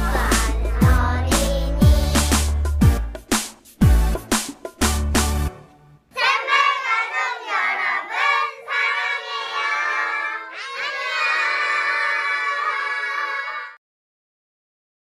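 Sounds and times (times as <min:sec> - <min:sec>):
children calling in sing-song unison: 0:06.1 - 0:13.8.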